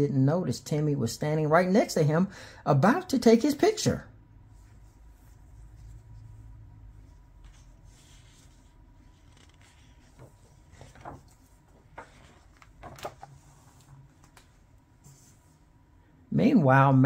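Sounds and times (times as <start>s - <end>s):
book page turning: 7.0s - 15.5s.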